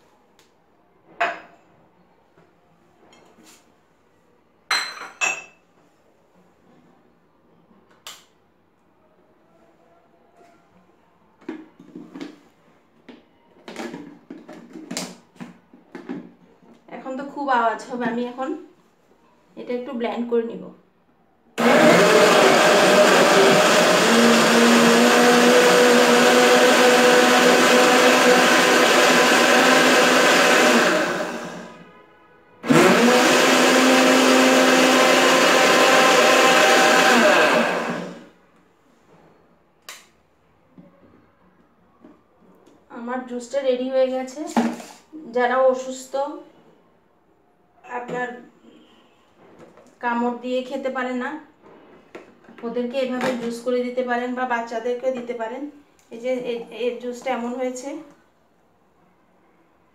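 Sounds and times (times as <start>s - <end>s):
kitchenware clinking: 4.7s - 5.6s
blender running: 21.6s - 31.8s, 32.6s - 38.3s.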